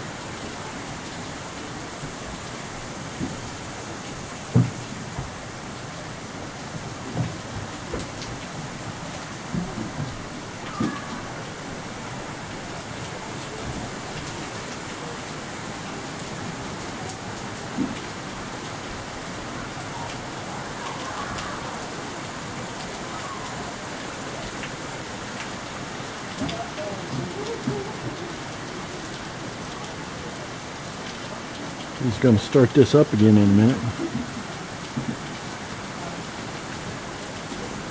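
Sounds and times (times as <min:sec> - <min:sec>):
falling water splashing: 0:00.0 - 0:37.9.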